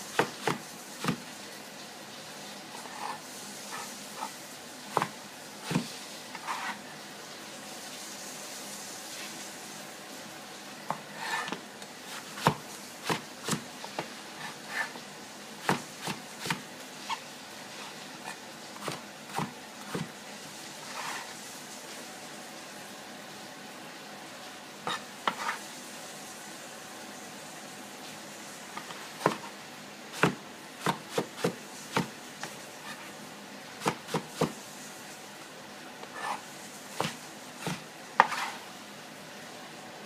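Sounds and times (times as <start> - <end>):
cleaver chopping on cutting board: 0.1 - 1.2, 5.0 - 5.9, 10.9 - 13.6, 15.6 - 16.6, 29.2 - 29.5, 30.2 - 32.1, 37.0 - 38.5.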